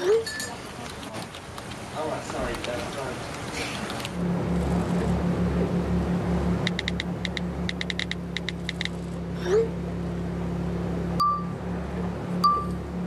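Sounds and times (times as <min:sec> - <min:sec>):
low steady hum: 0:02.3 - 0:13.0
rising swoosh: 0:04.2 - 0:13.0.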